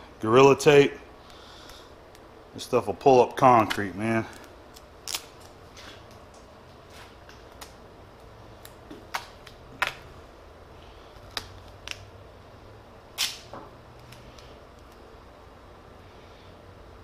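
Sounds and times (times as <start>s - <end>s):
tape ripping off roll: 13.2s - 13.6s.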